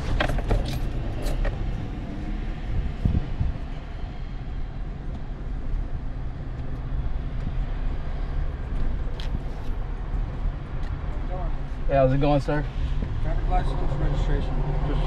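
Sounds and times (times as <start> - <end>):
road traffic passing: 0.0 - 15.0.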